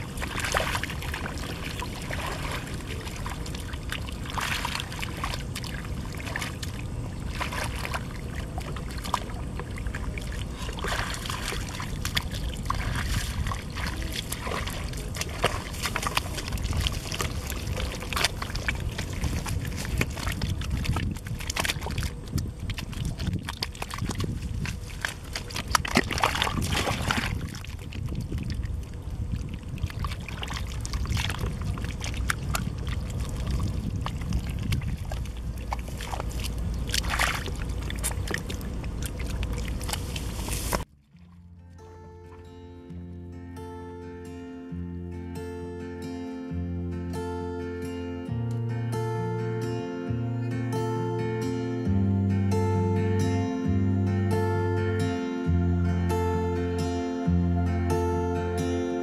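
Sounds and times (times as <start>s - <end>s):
hands squelching in wet mud: 0.0s - 41.5s
muddy water splashing: 0.0s - 43.3s.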